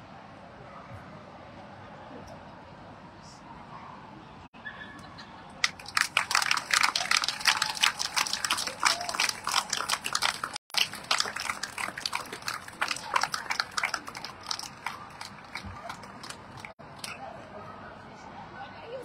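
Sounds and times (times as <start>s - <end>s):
audience clapping: 5.6s - 16.8s.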